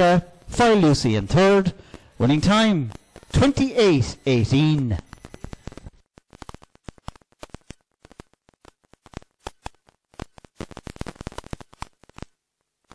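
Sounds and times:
crackling clicks: 0:00.2 - 0:12.9.

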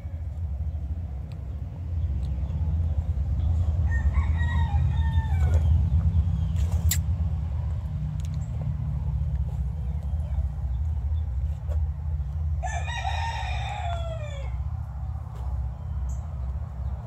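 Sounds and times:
rooster crowing: 0:00.0 - 0:00.4, 0:03.8 - 0:05.7, 0:12.6 - 0:14.7
steady low rumble: 0:00.0 - 0:12.9, 0:13.5 - 0:17.0.

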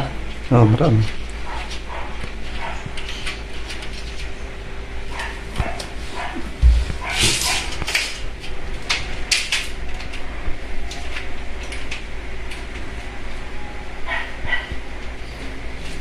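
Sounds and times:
steady low hum: 0:00.0 - 0:09.3
sliding door track rattling: 0:06.6 - 0:10.2.

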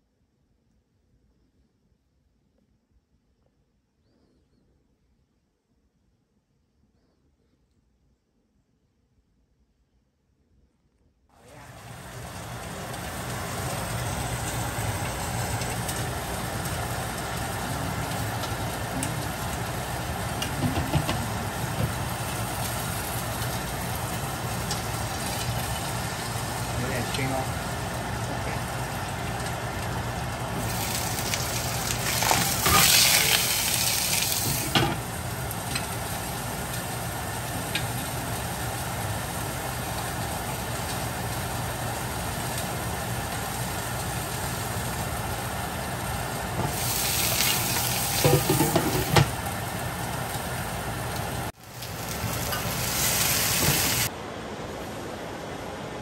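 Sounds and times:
fish sizzling in oil: 0:11.7 - 0:54.1
oil spattering and popping: 0:30.6 - 0:34.8.

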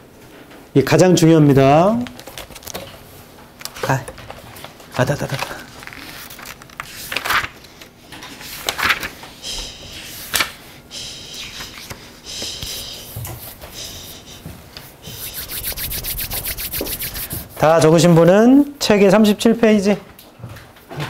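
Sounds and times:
paper pages turning: 0:02.0 - 0:03.0, 0:03.6 - 0:09.2, 0:11.4 - 0:14.2, 0:15.1 - 0:17.8
hands rubbing together: 0:11.0 - 0:18.0
writing scratching on paper: 0:11.4 - 0:17.7.

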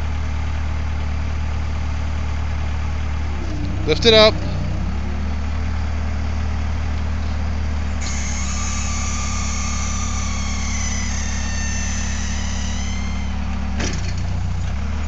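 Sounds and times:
diesel engine running: 0:00.0 - 0:15.0
high hydraulic whine: 0:07.2 - 0:14.8.

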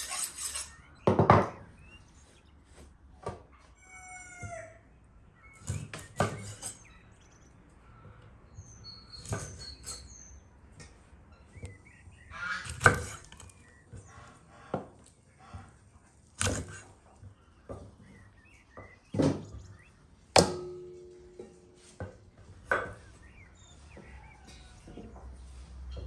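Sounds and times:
small birds chirping: 0:00.3 - 0:02.8, 0:04.0 - 0:20.3, 0:21.2 - 0:26.0
chicken calling: 0:03.5 - 0:05.7, 0:11.9 - 0:15.8
knife chopping on wooden board: 0:12.7 - 0:13.4, 0:16.4 - 0:16.8.

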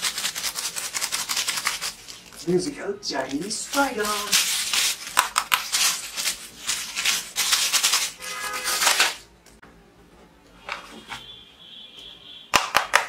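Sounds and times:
plastic packaging crinkling: 0:00.0 - 0:09.3.

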